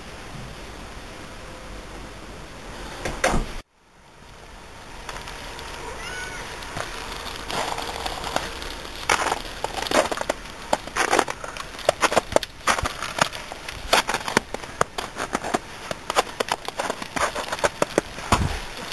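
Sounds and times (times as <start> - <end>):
footsteps crunching on snow: 4.8 - 18.9.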